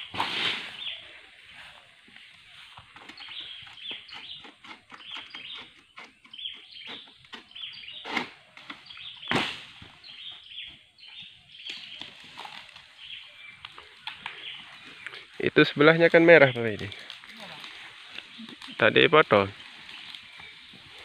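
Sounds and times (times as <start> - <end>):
birds chirping: 0.0 - 21.0
palm fronds rustling and cracking: 6.9 - 10.5, 11.1 - 21.0.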